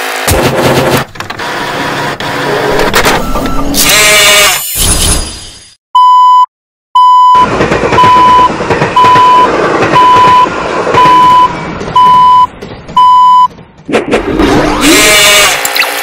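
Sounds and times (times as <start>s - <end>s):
crossing signal beeping: 6.0s - 13.6s
train rumbling and clattering: 7.3s - 14.6s.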